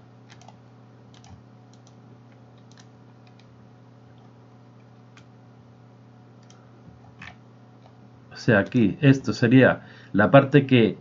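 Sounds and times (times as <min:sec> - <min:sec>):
faint low hum: 0:00.0 - 0:11.0
mouse and keyboard clicks: 0:00.3 - 0:03.5.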